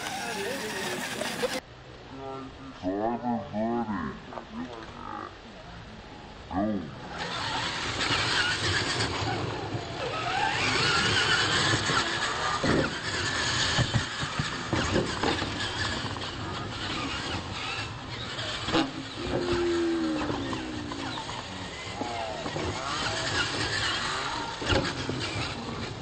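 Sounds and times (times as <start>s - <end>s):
electric motors whining: 0.0s - 1.6s, 7.0s - 26.0s
tyre and drivetrain noise: 0.0s - 2.0s, 4.3s - 26.0s
trucks thumping on ramps: 7.2s - 26.0s.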